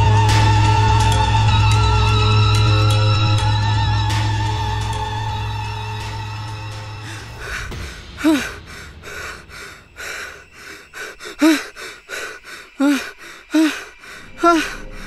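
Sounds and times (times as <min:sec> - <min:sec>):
man panting hard: 0:07.0 - 0:15.0.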